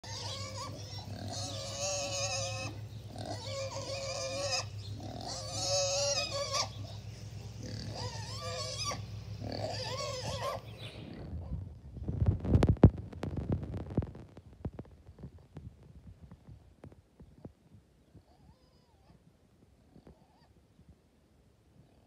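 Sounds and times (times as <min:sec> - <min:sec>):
pig squealing: 0:00.0 - 0:07.0, 0:07.6 - 0:11.6, 0:18.3 - 0:19.2, 0:20.2 - 0:20.5.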